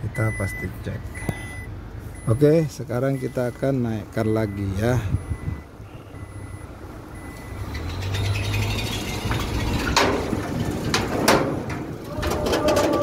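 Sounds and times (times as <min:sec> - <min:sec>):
car engine rumble: 0:00.0 - 0:13.0
metallic clanks of ramp: 0:07.7 - 0:13.0.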